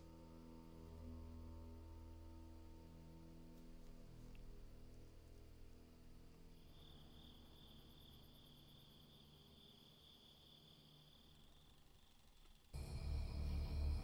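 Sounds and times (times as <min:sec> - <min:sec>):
low held film score tones: 0:11.2 - 0:14.0.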